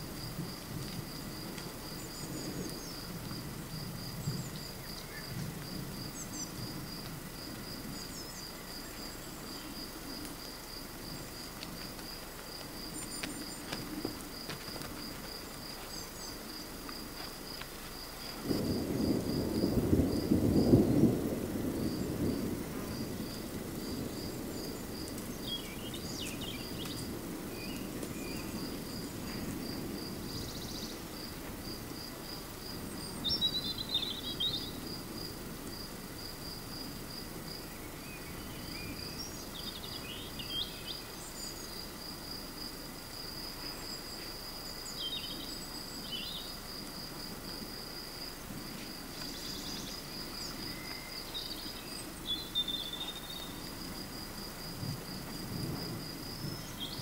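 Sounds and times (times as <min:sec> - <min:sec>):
cricket chirping: 0:00.0 - 0:57.0
thunder: 0:00.1 - 0:08.1, 0:18.3 - 0:32.0, 0:54.7 - 0:57.0.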